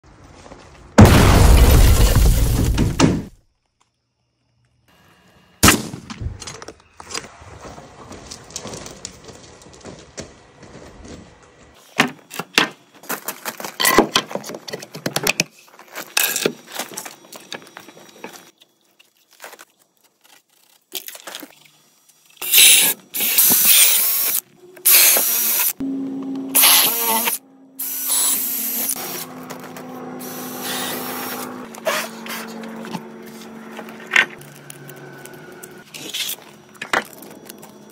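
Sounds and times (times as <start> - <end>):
power drill boring wood: 22.5 - 25.8, 26.5 - 33.5.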